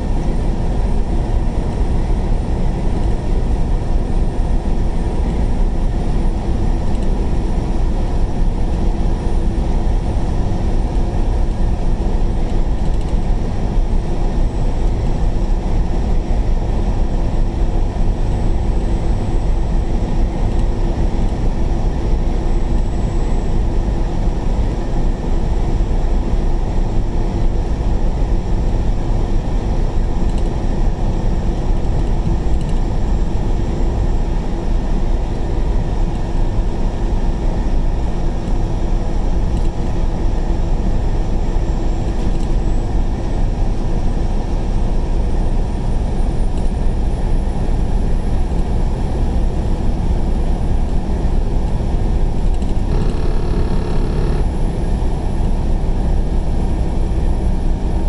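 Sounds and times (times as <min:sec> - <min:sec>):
vehicle road and engine rumble: 0:00.0 - 0:58.0
faint hum: 0:31.4 - 0:58.0.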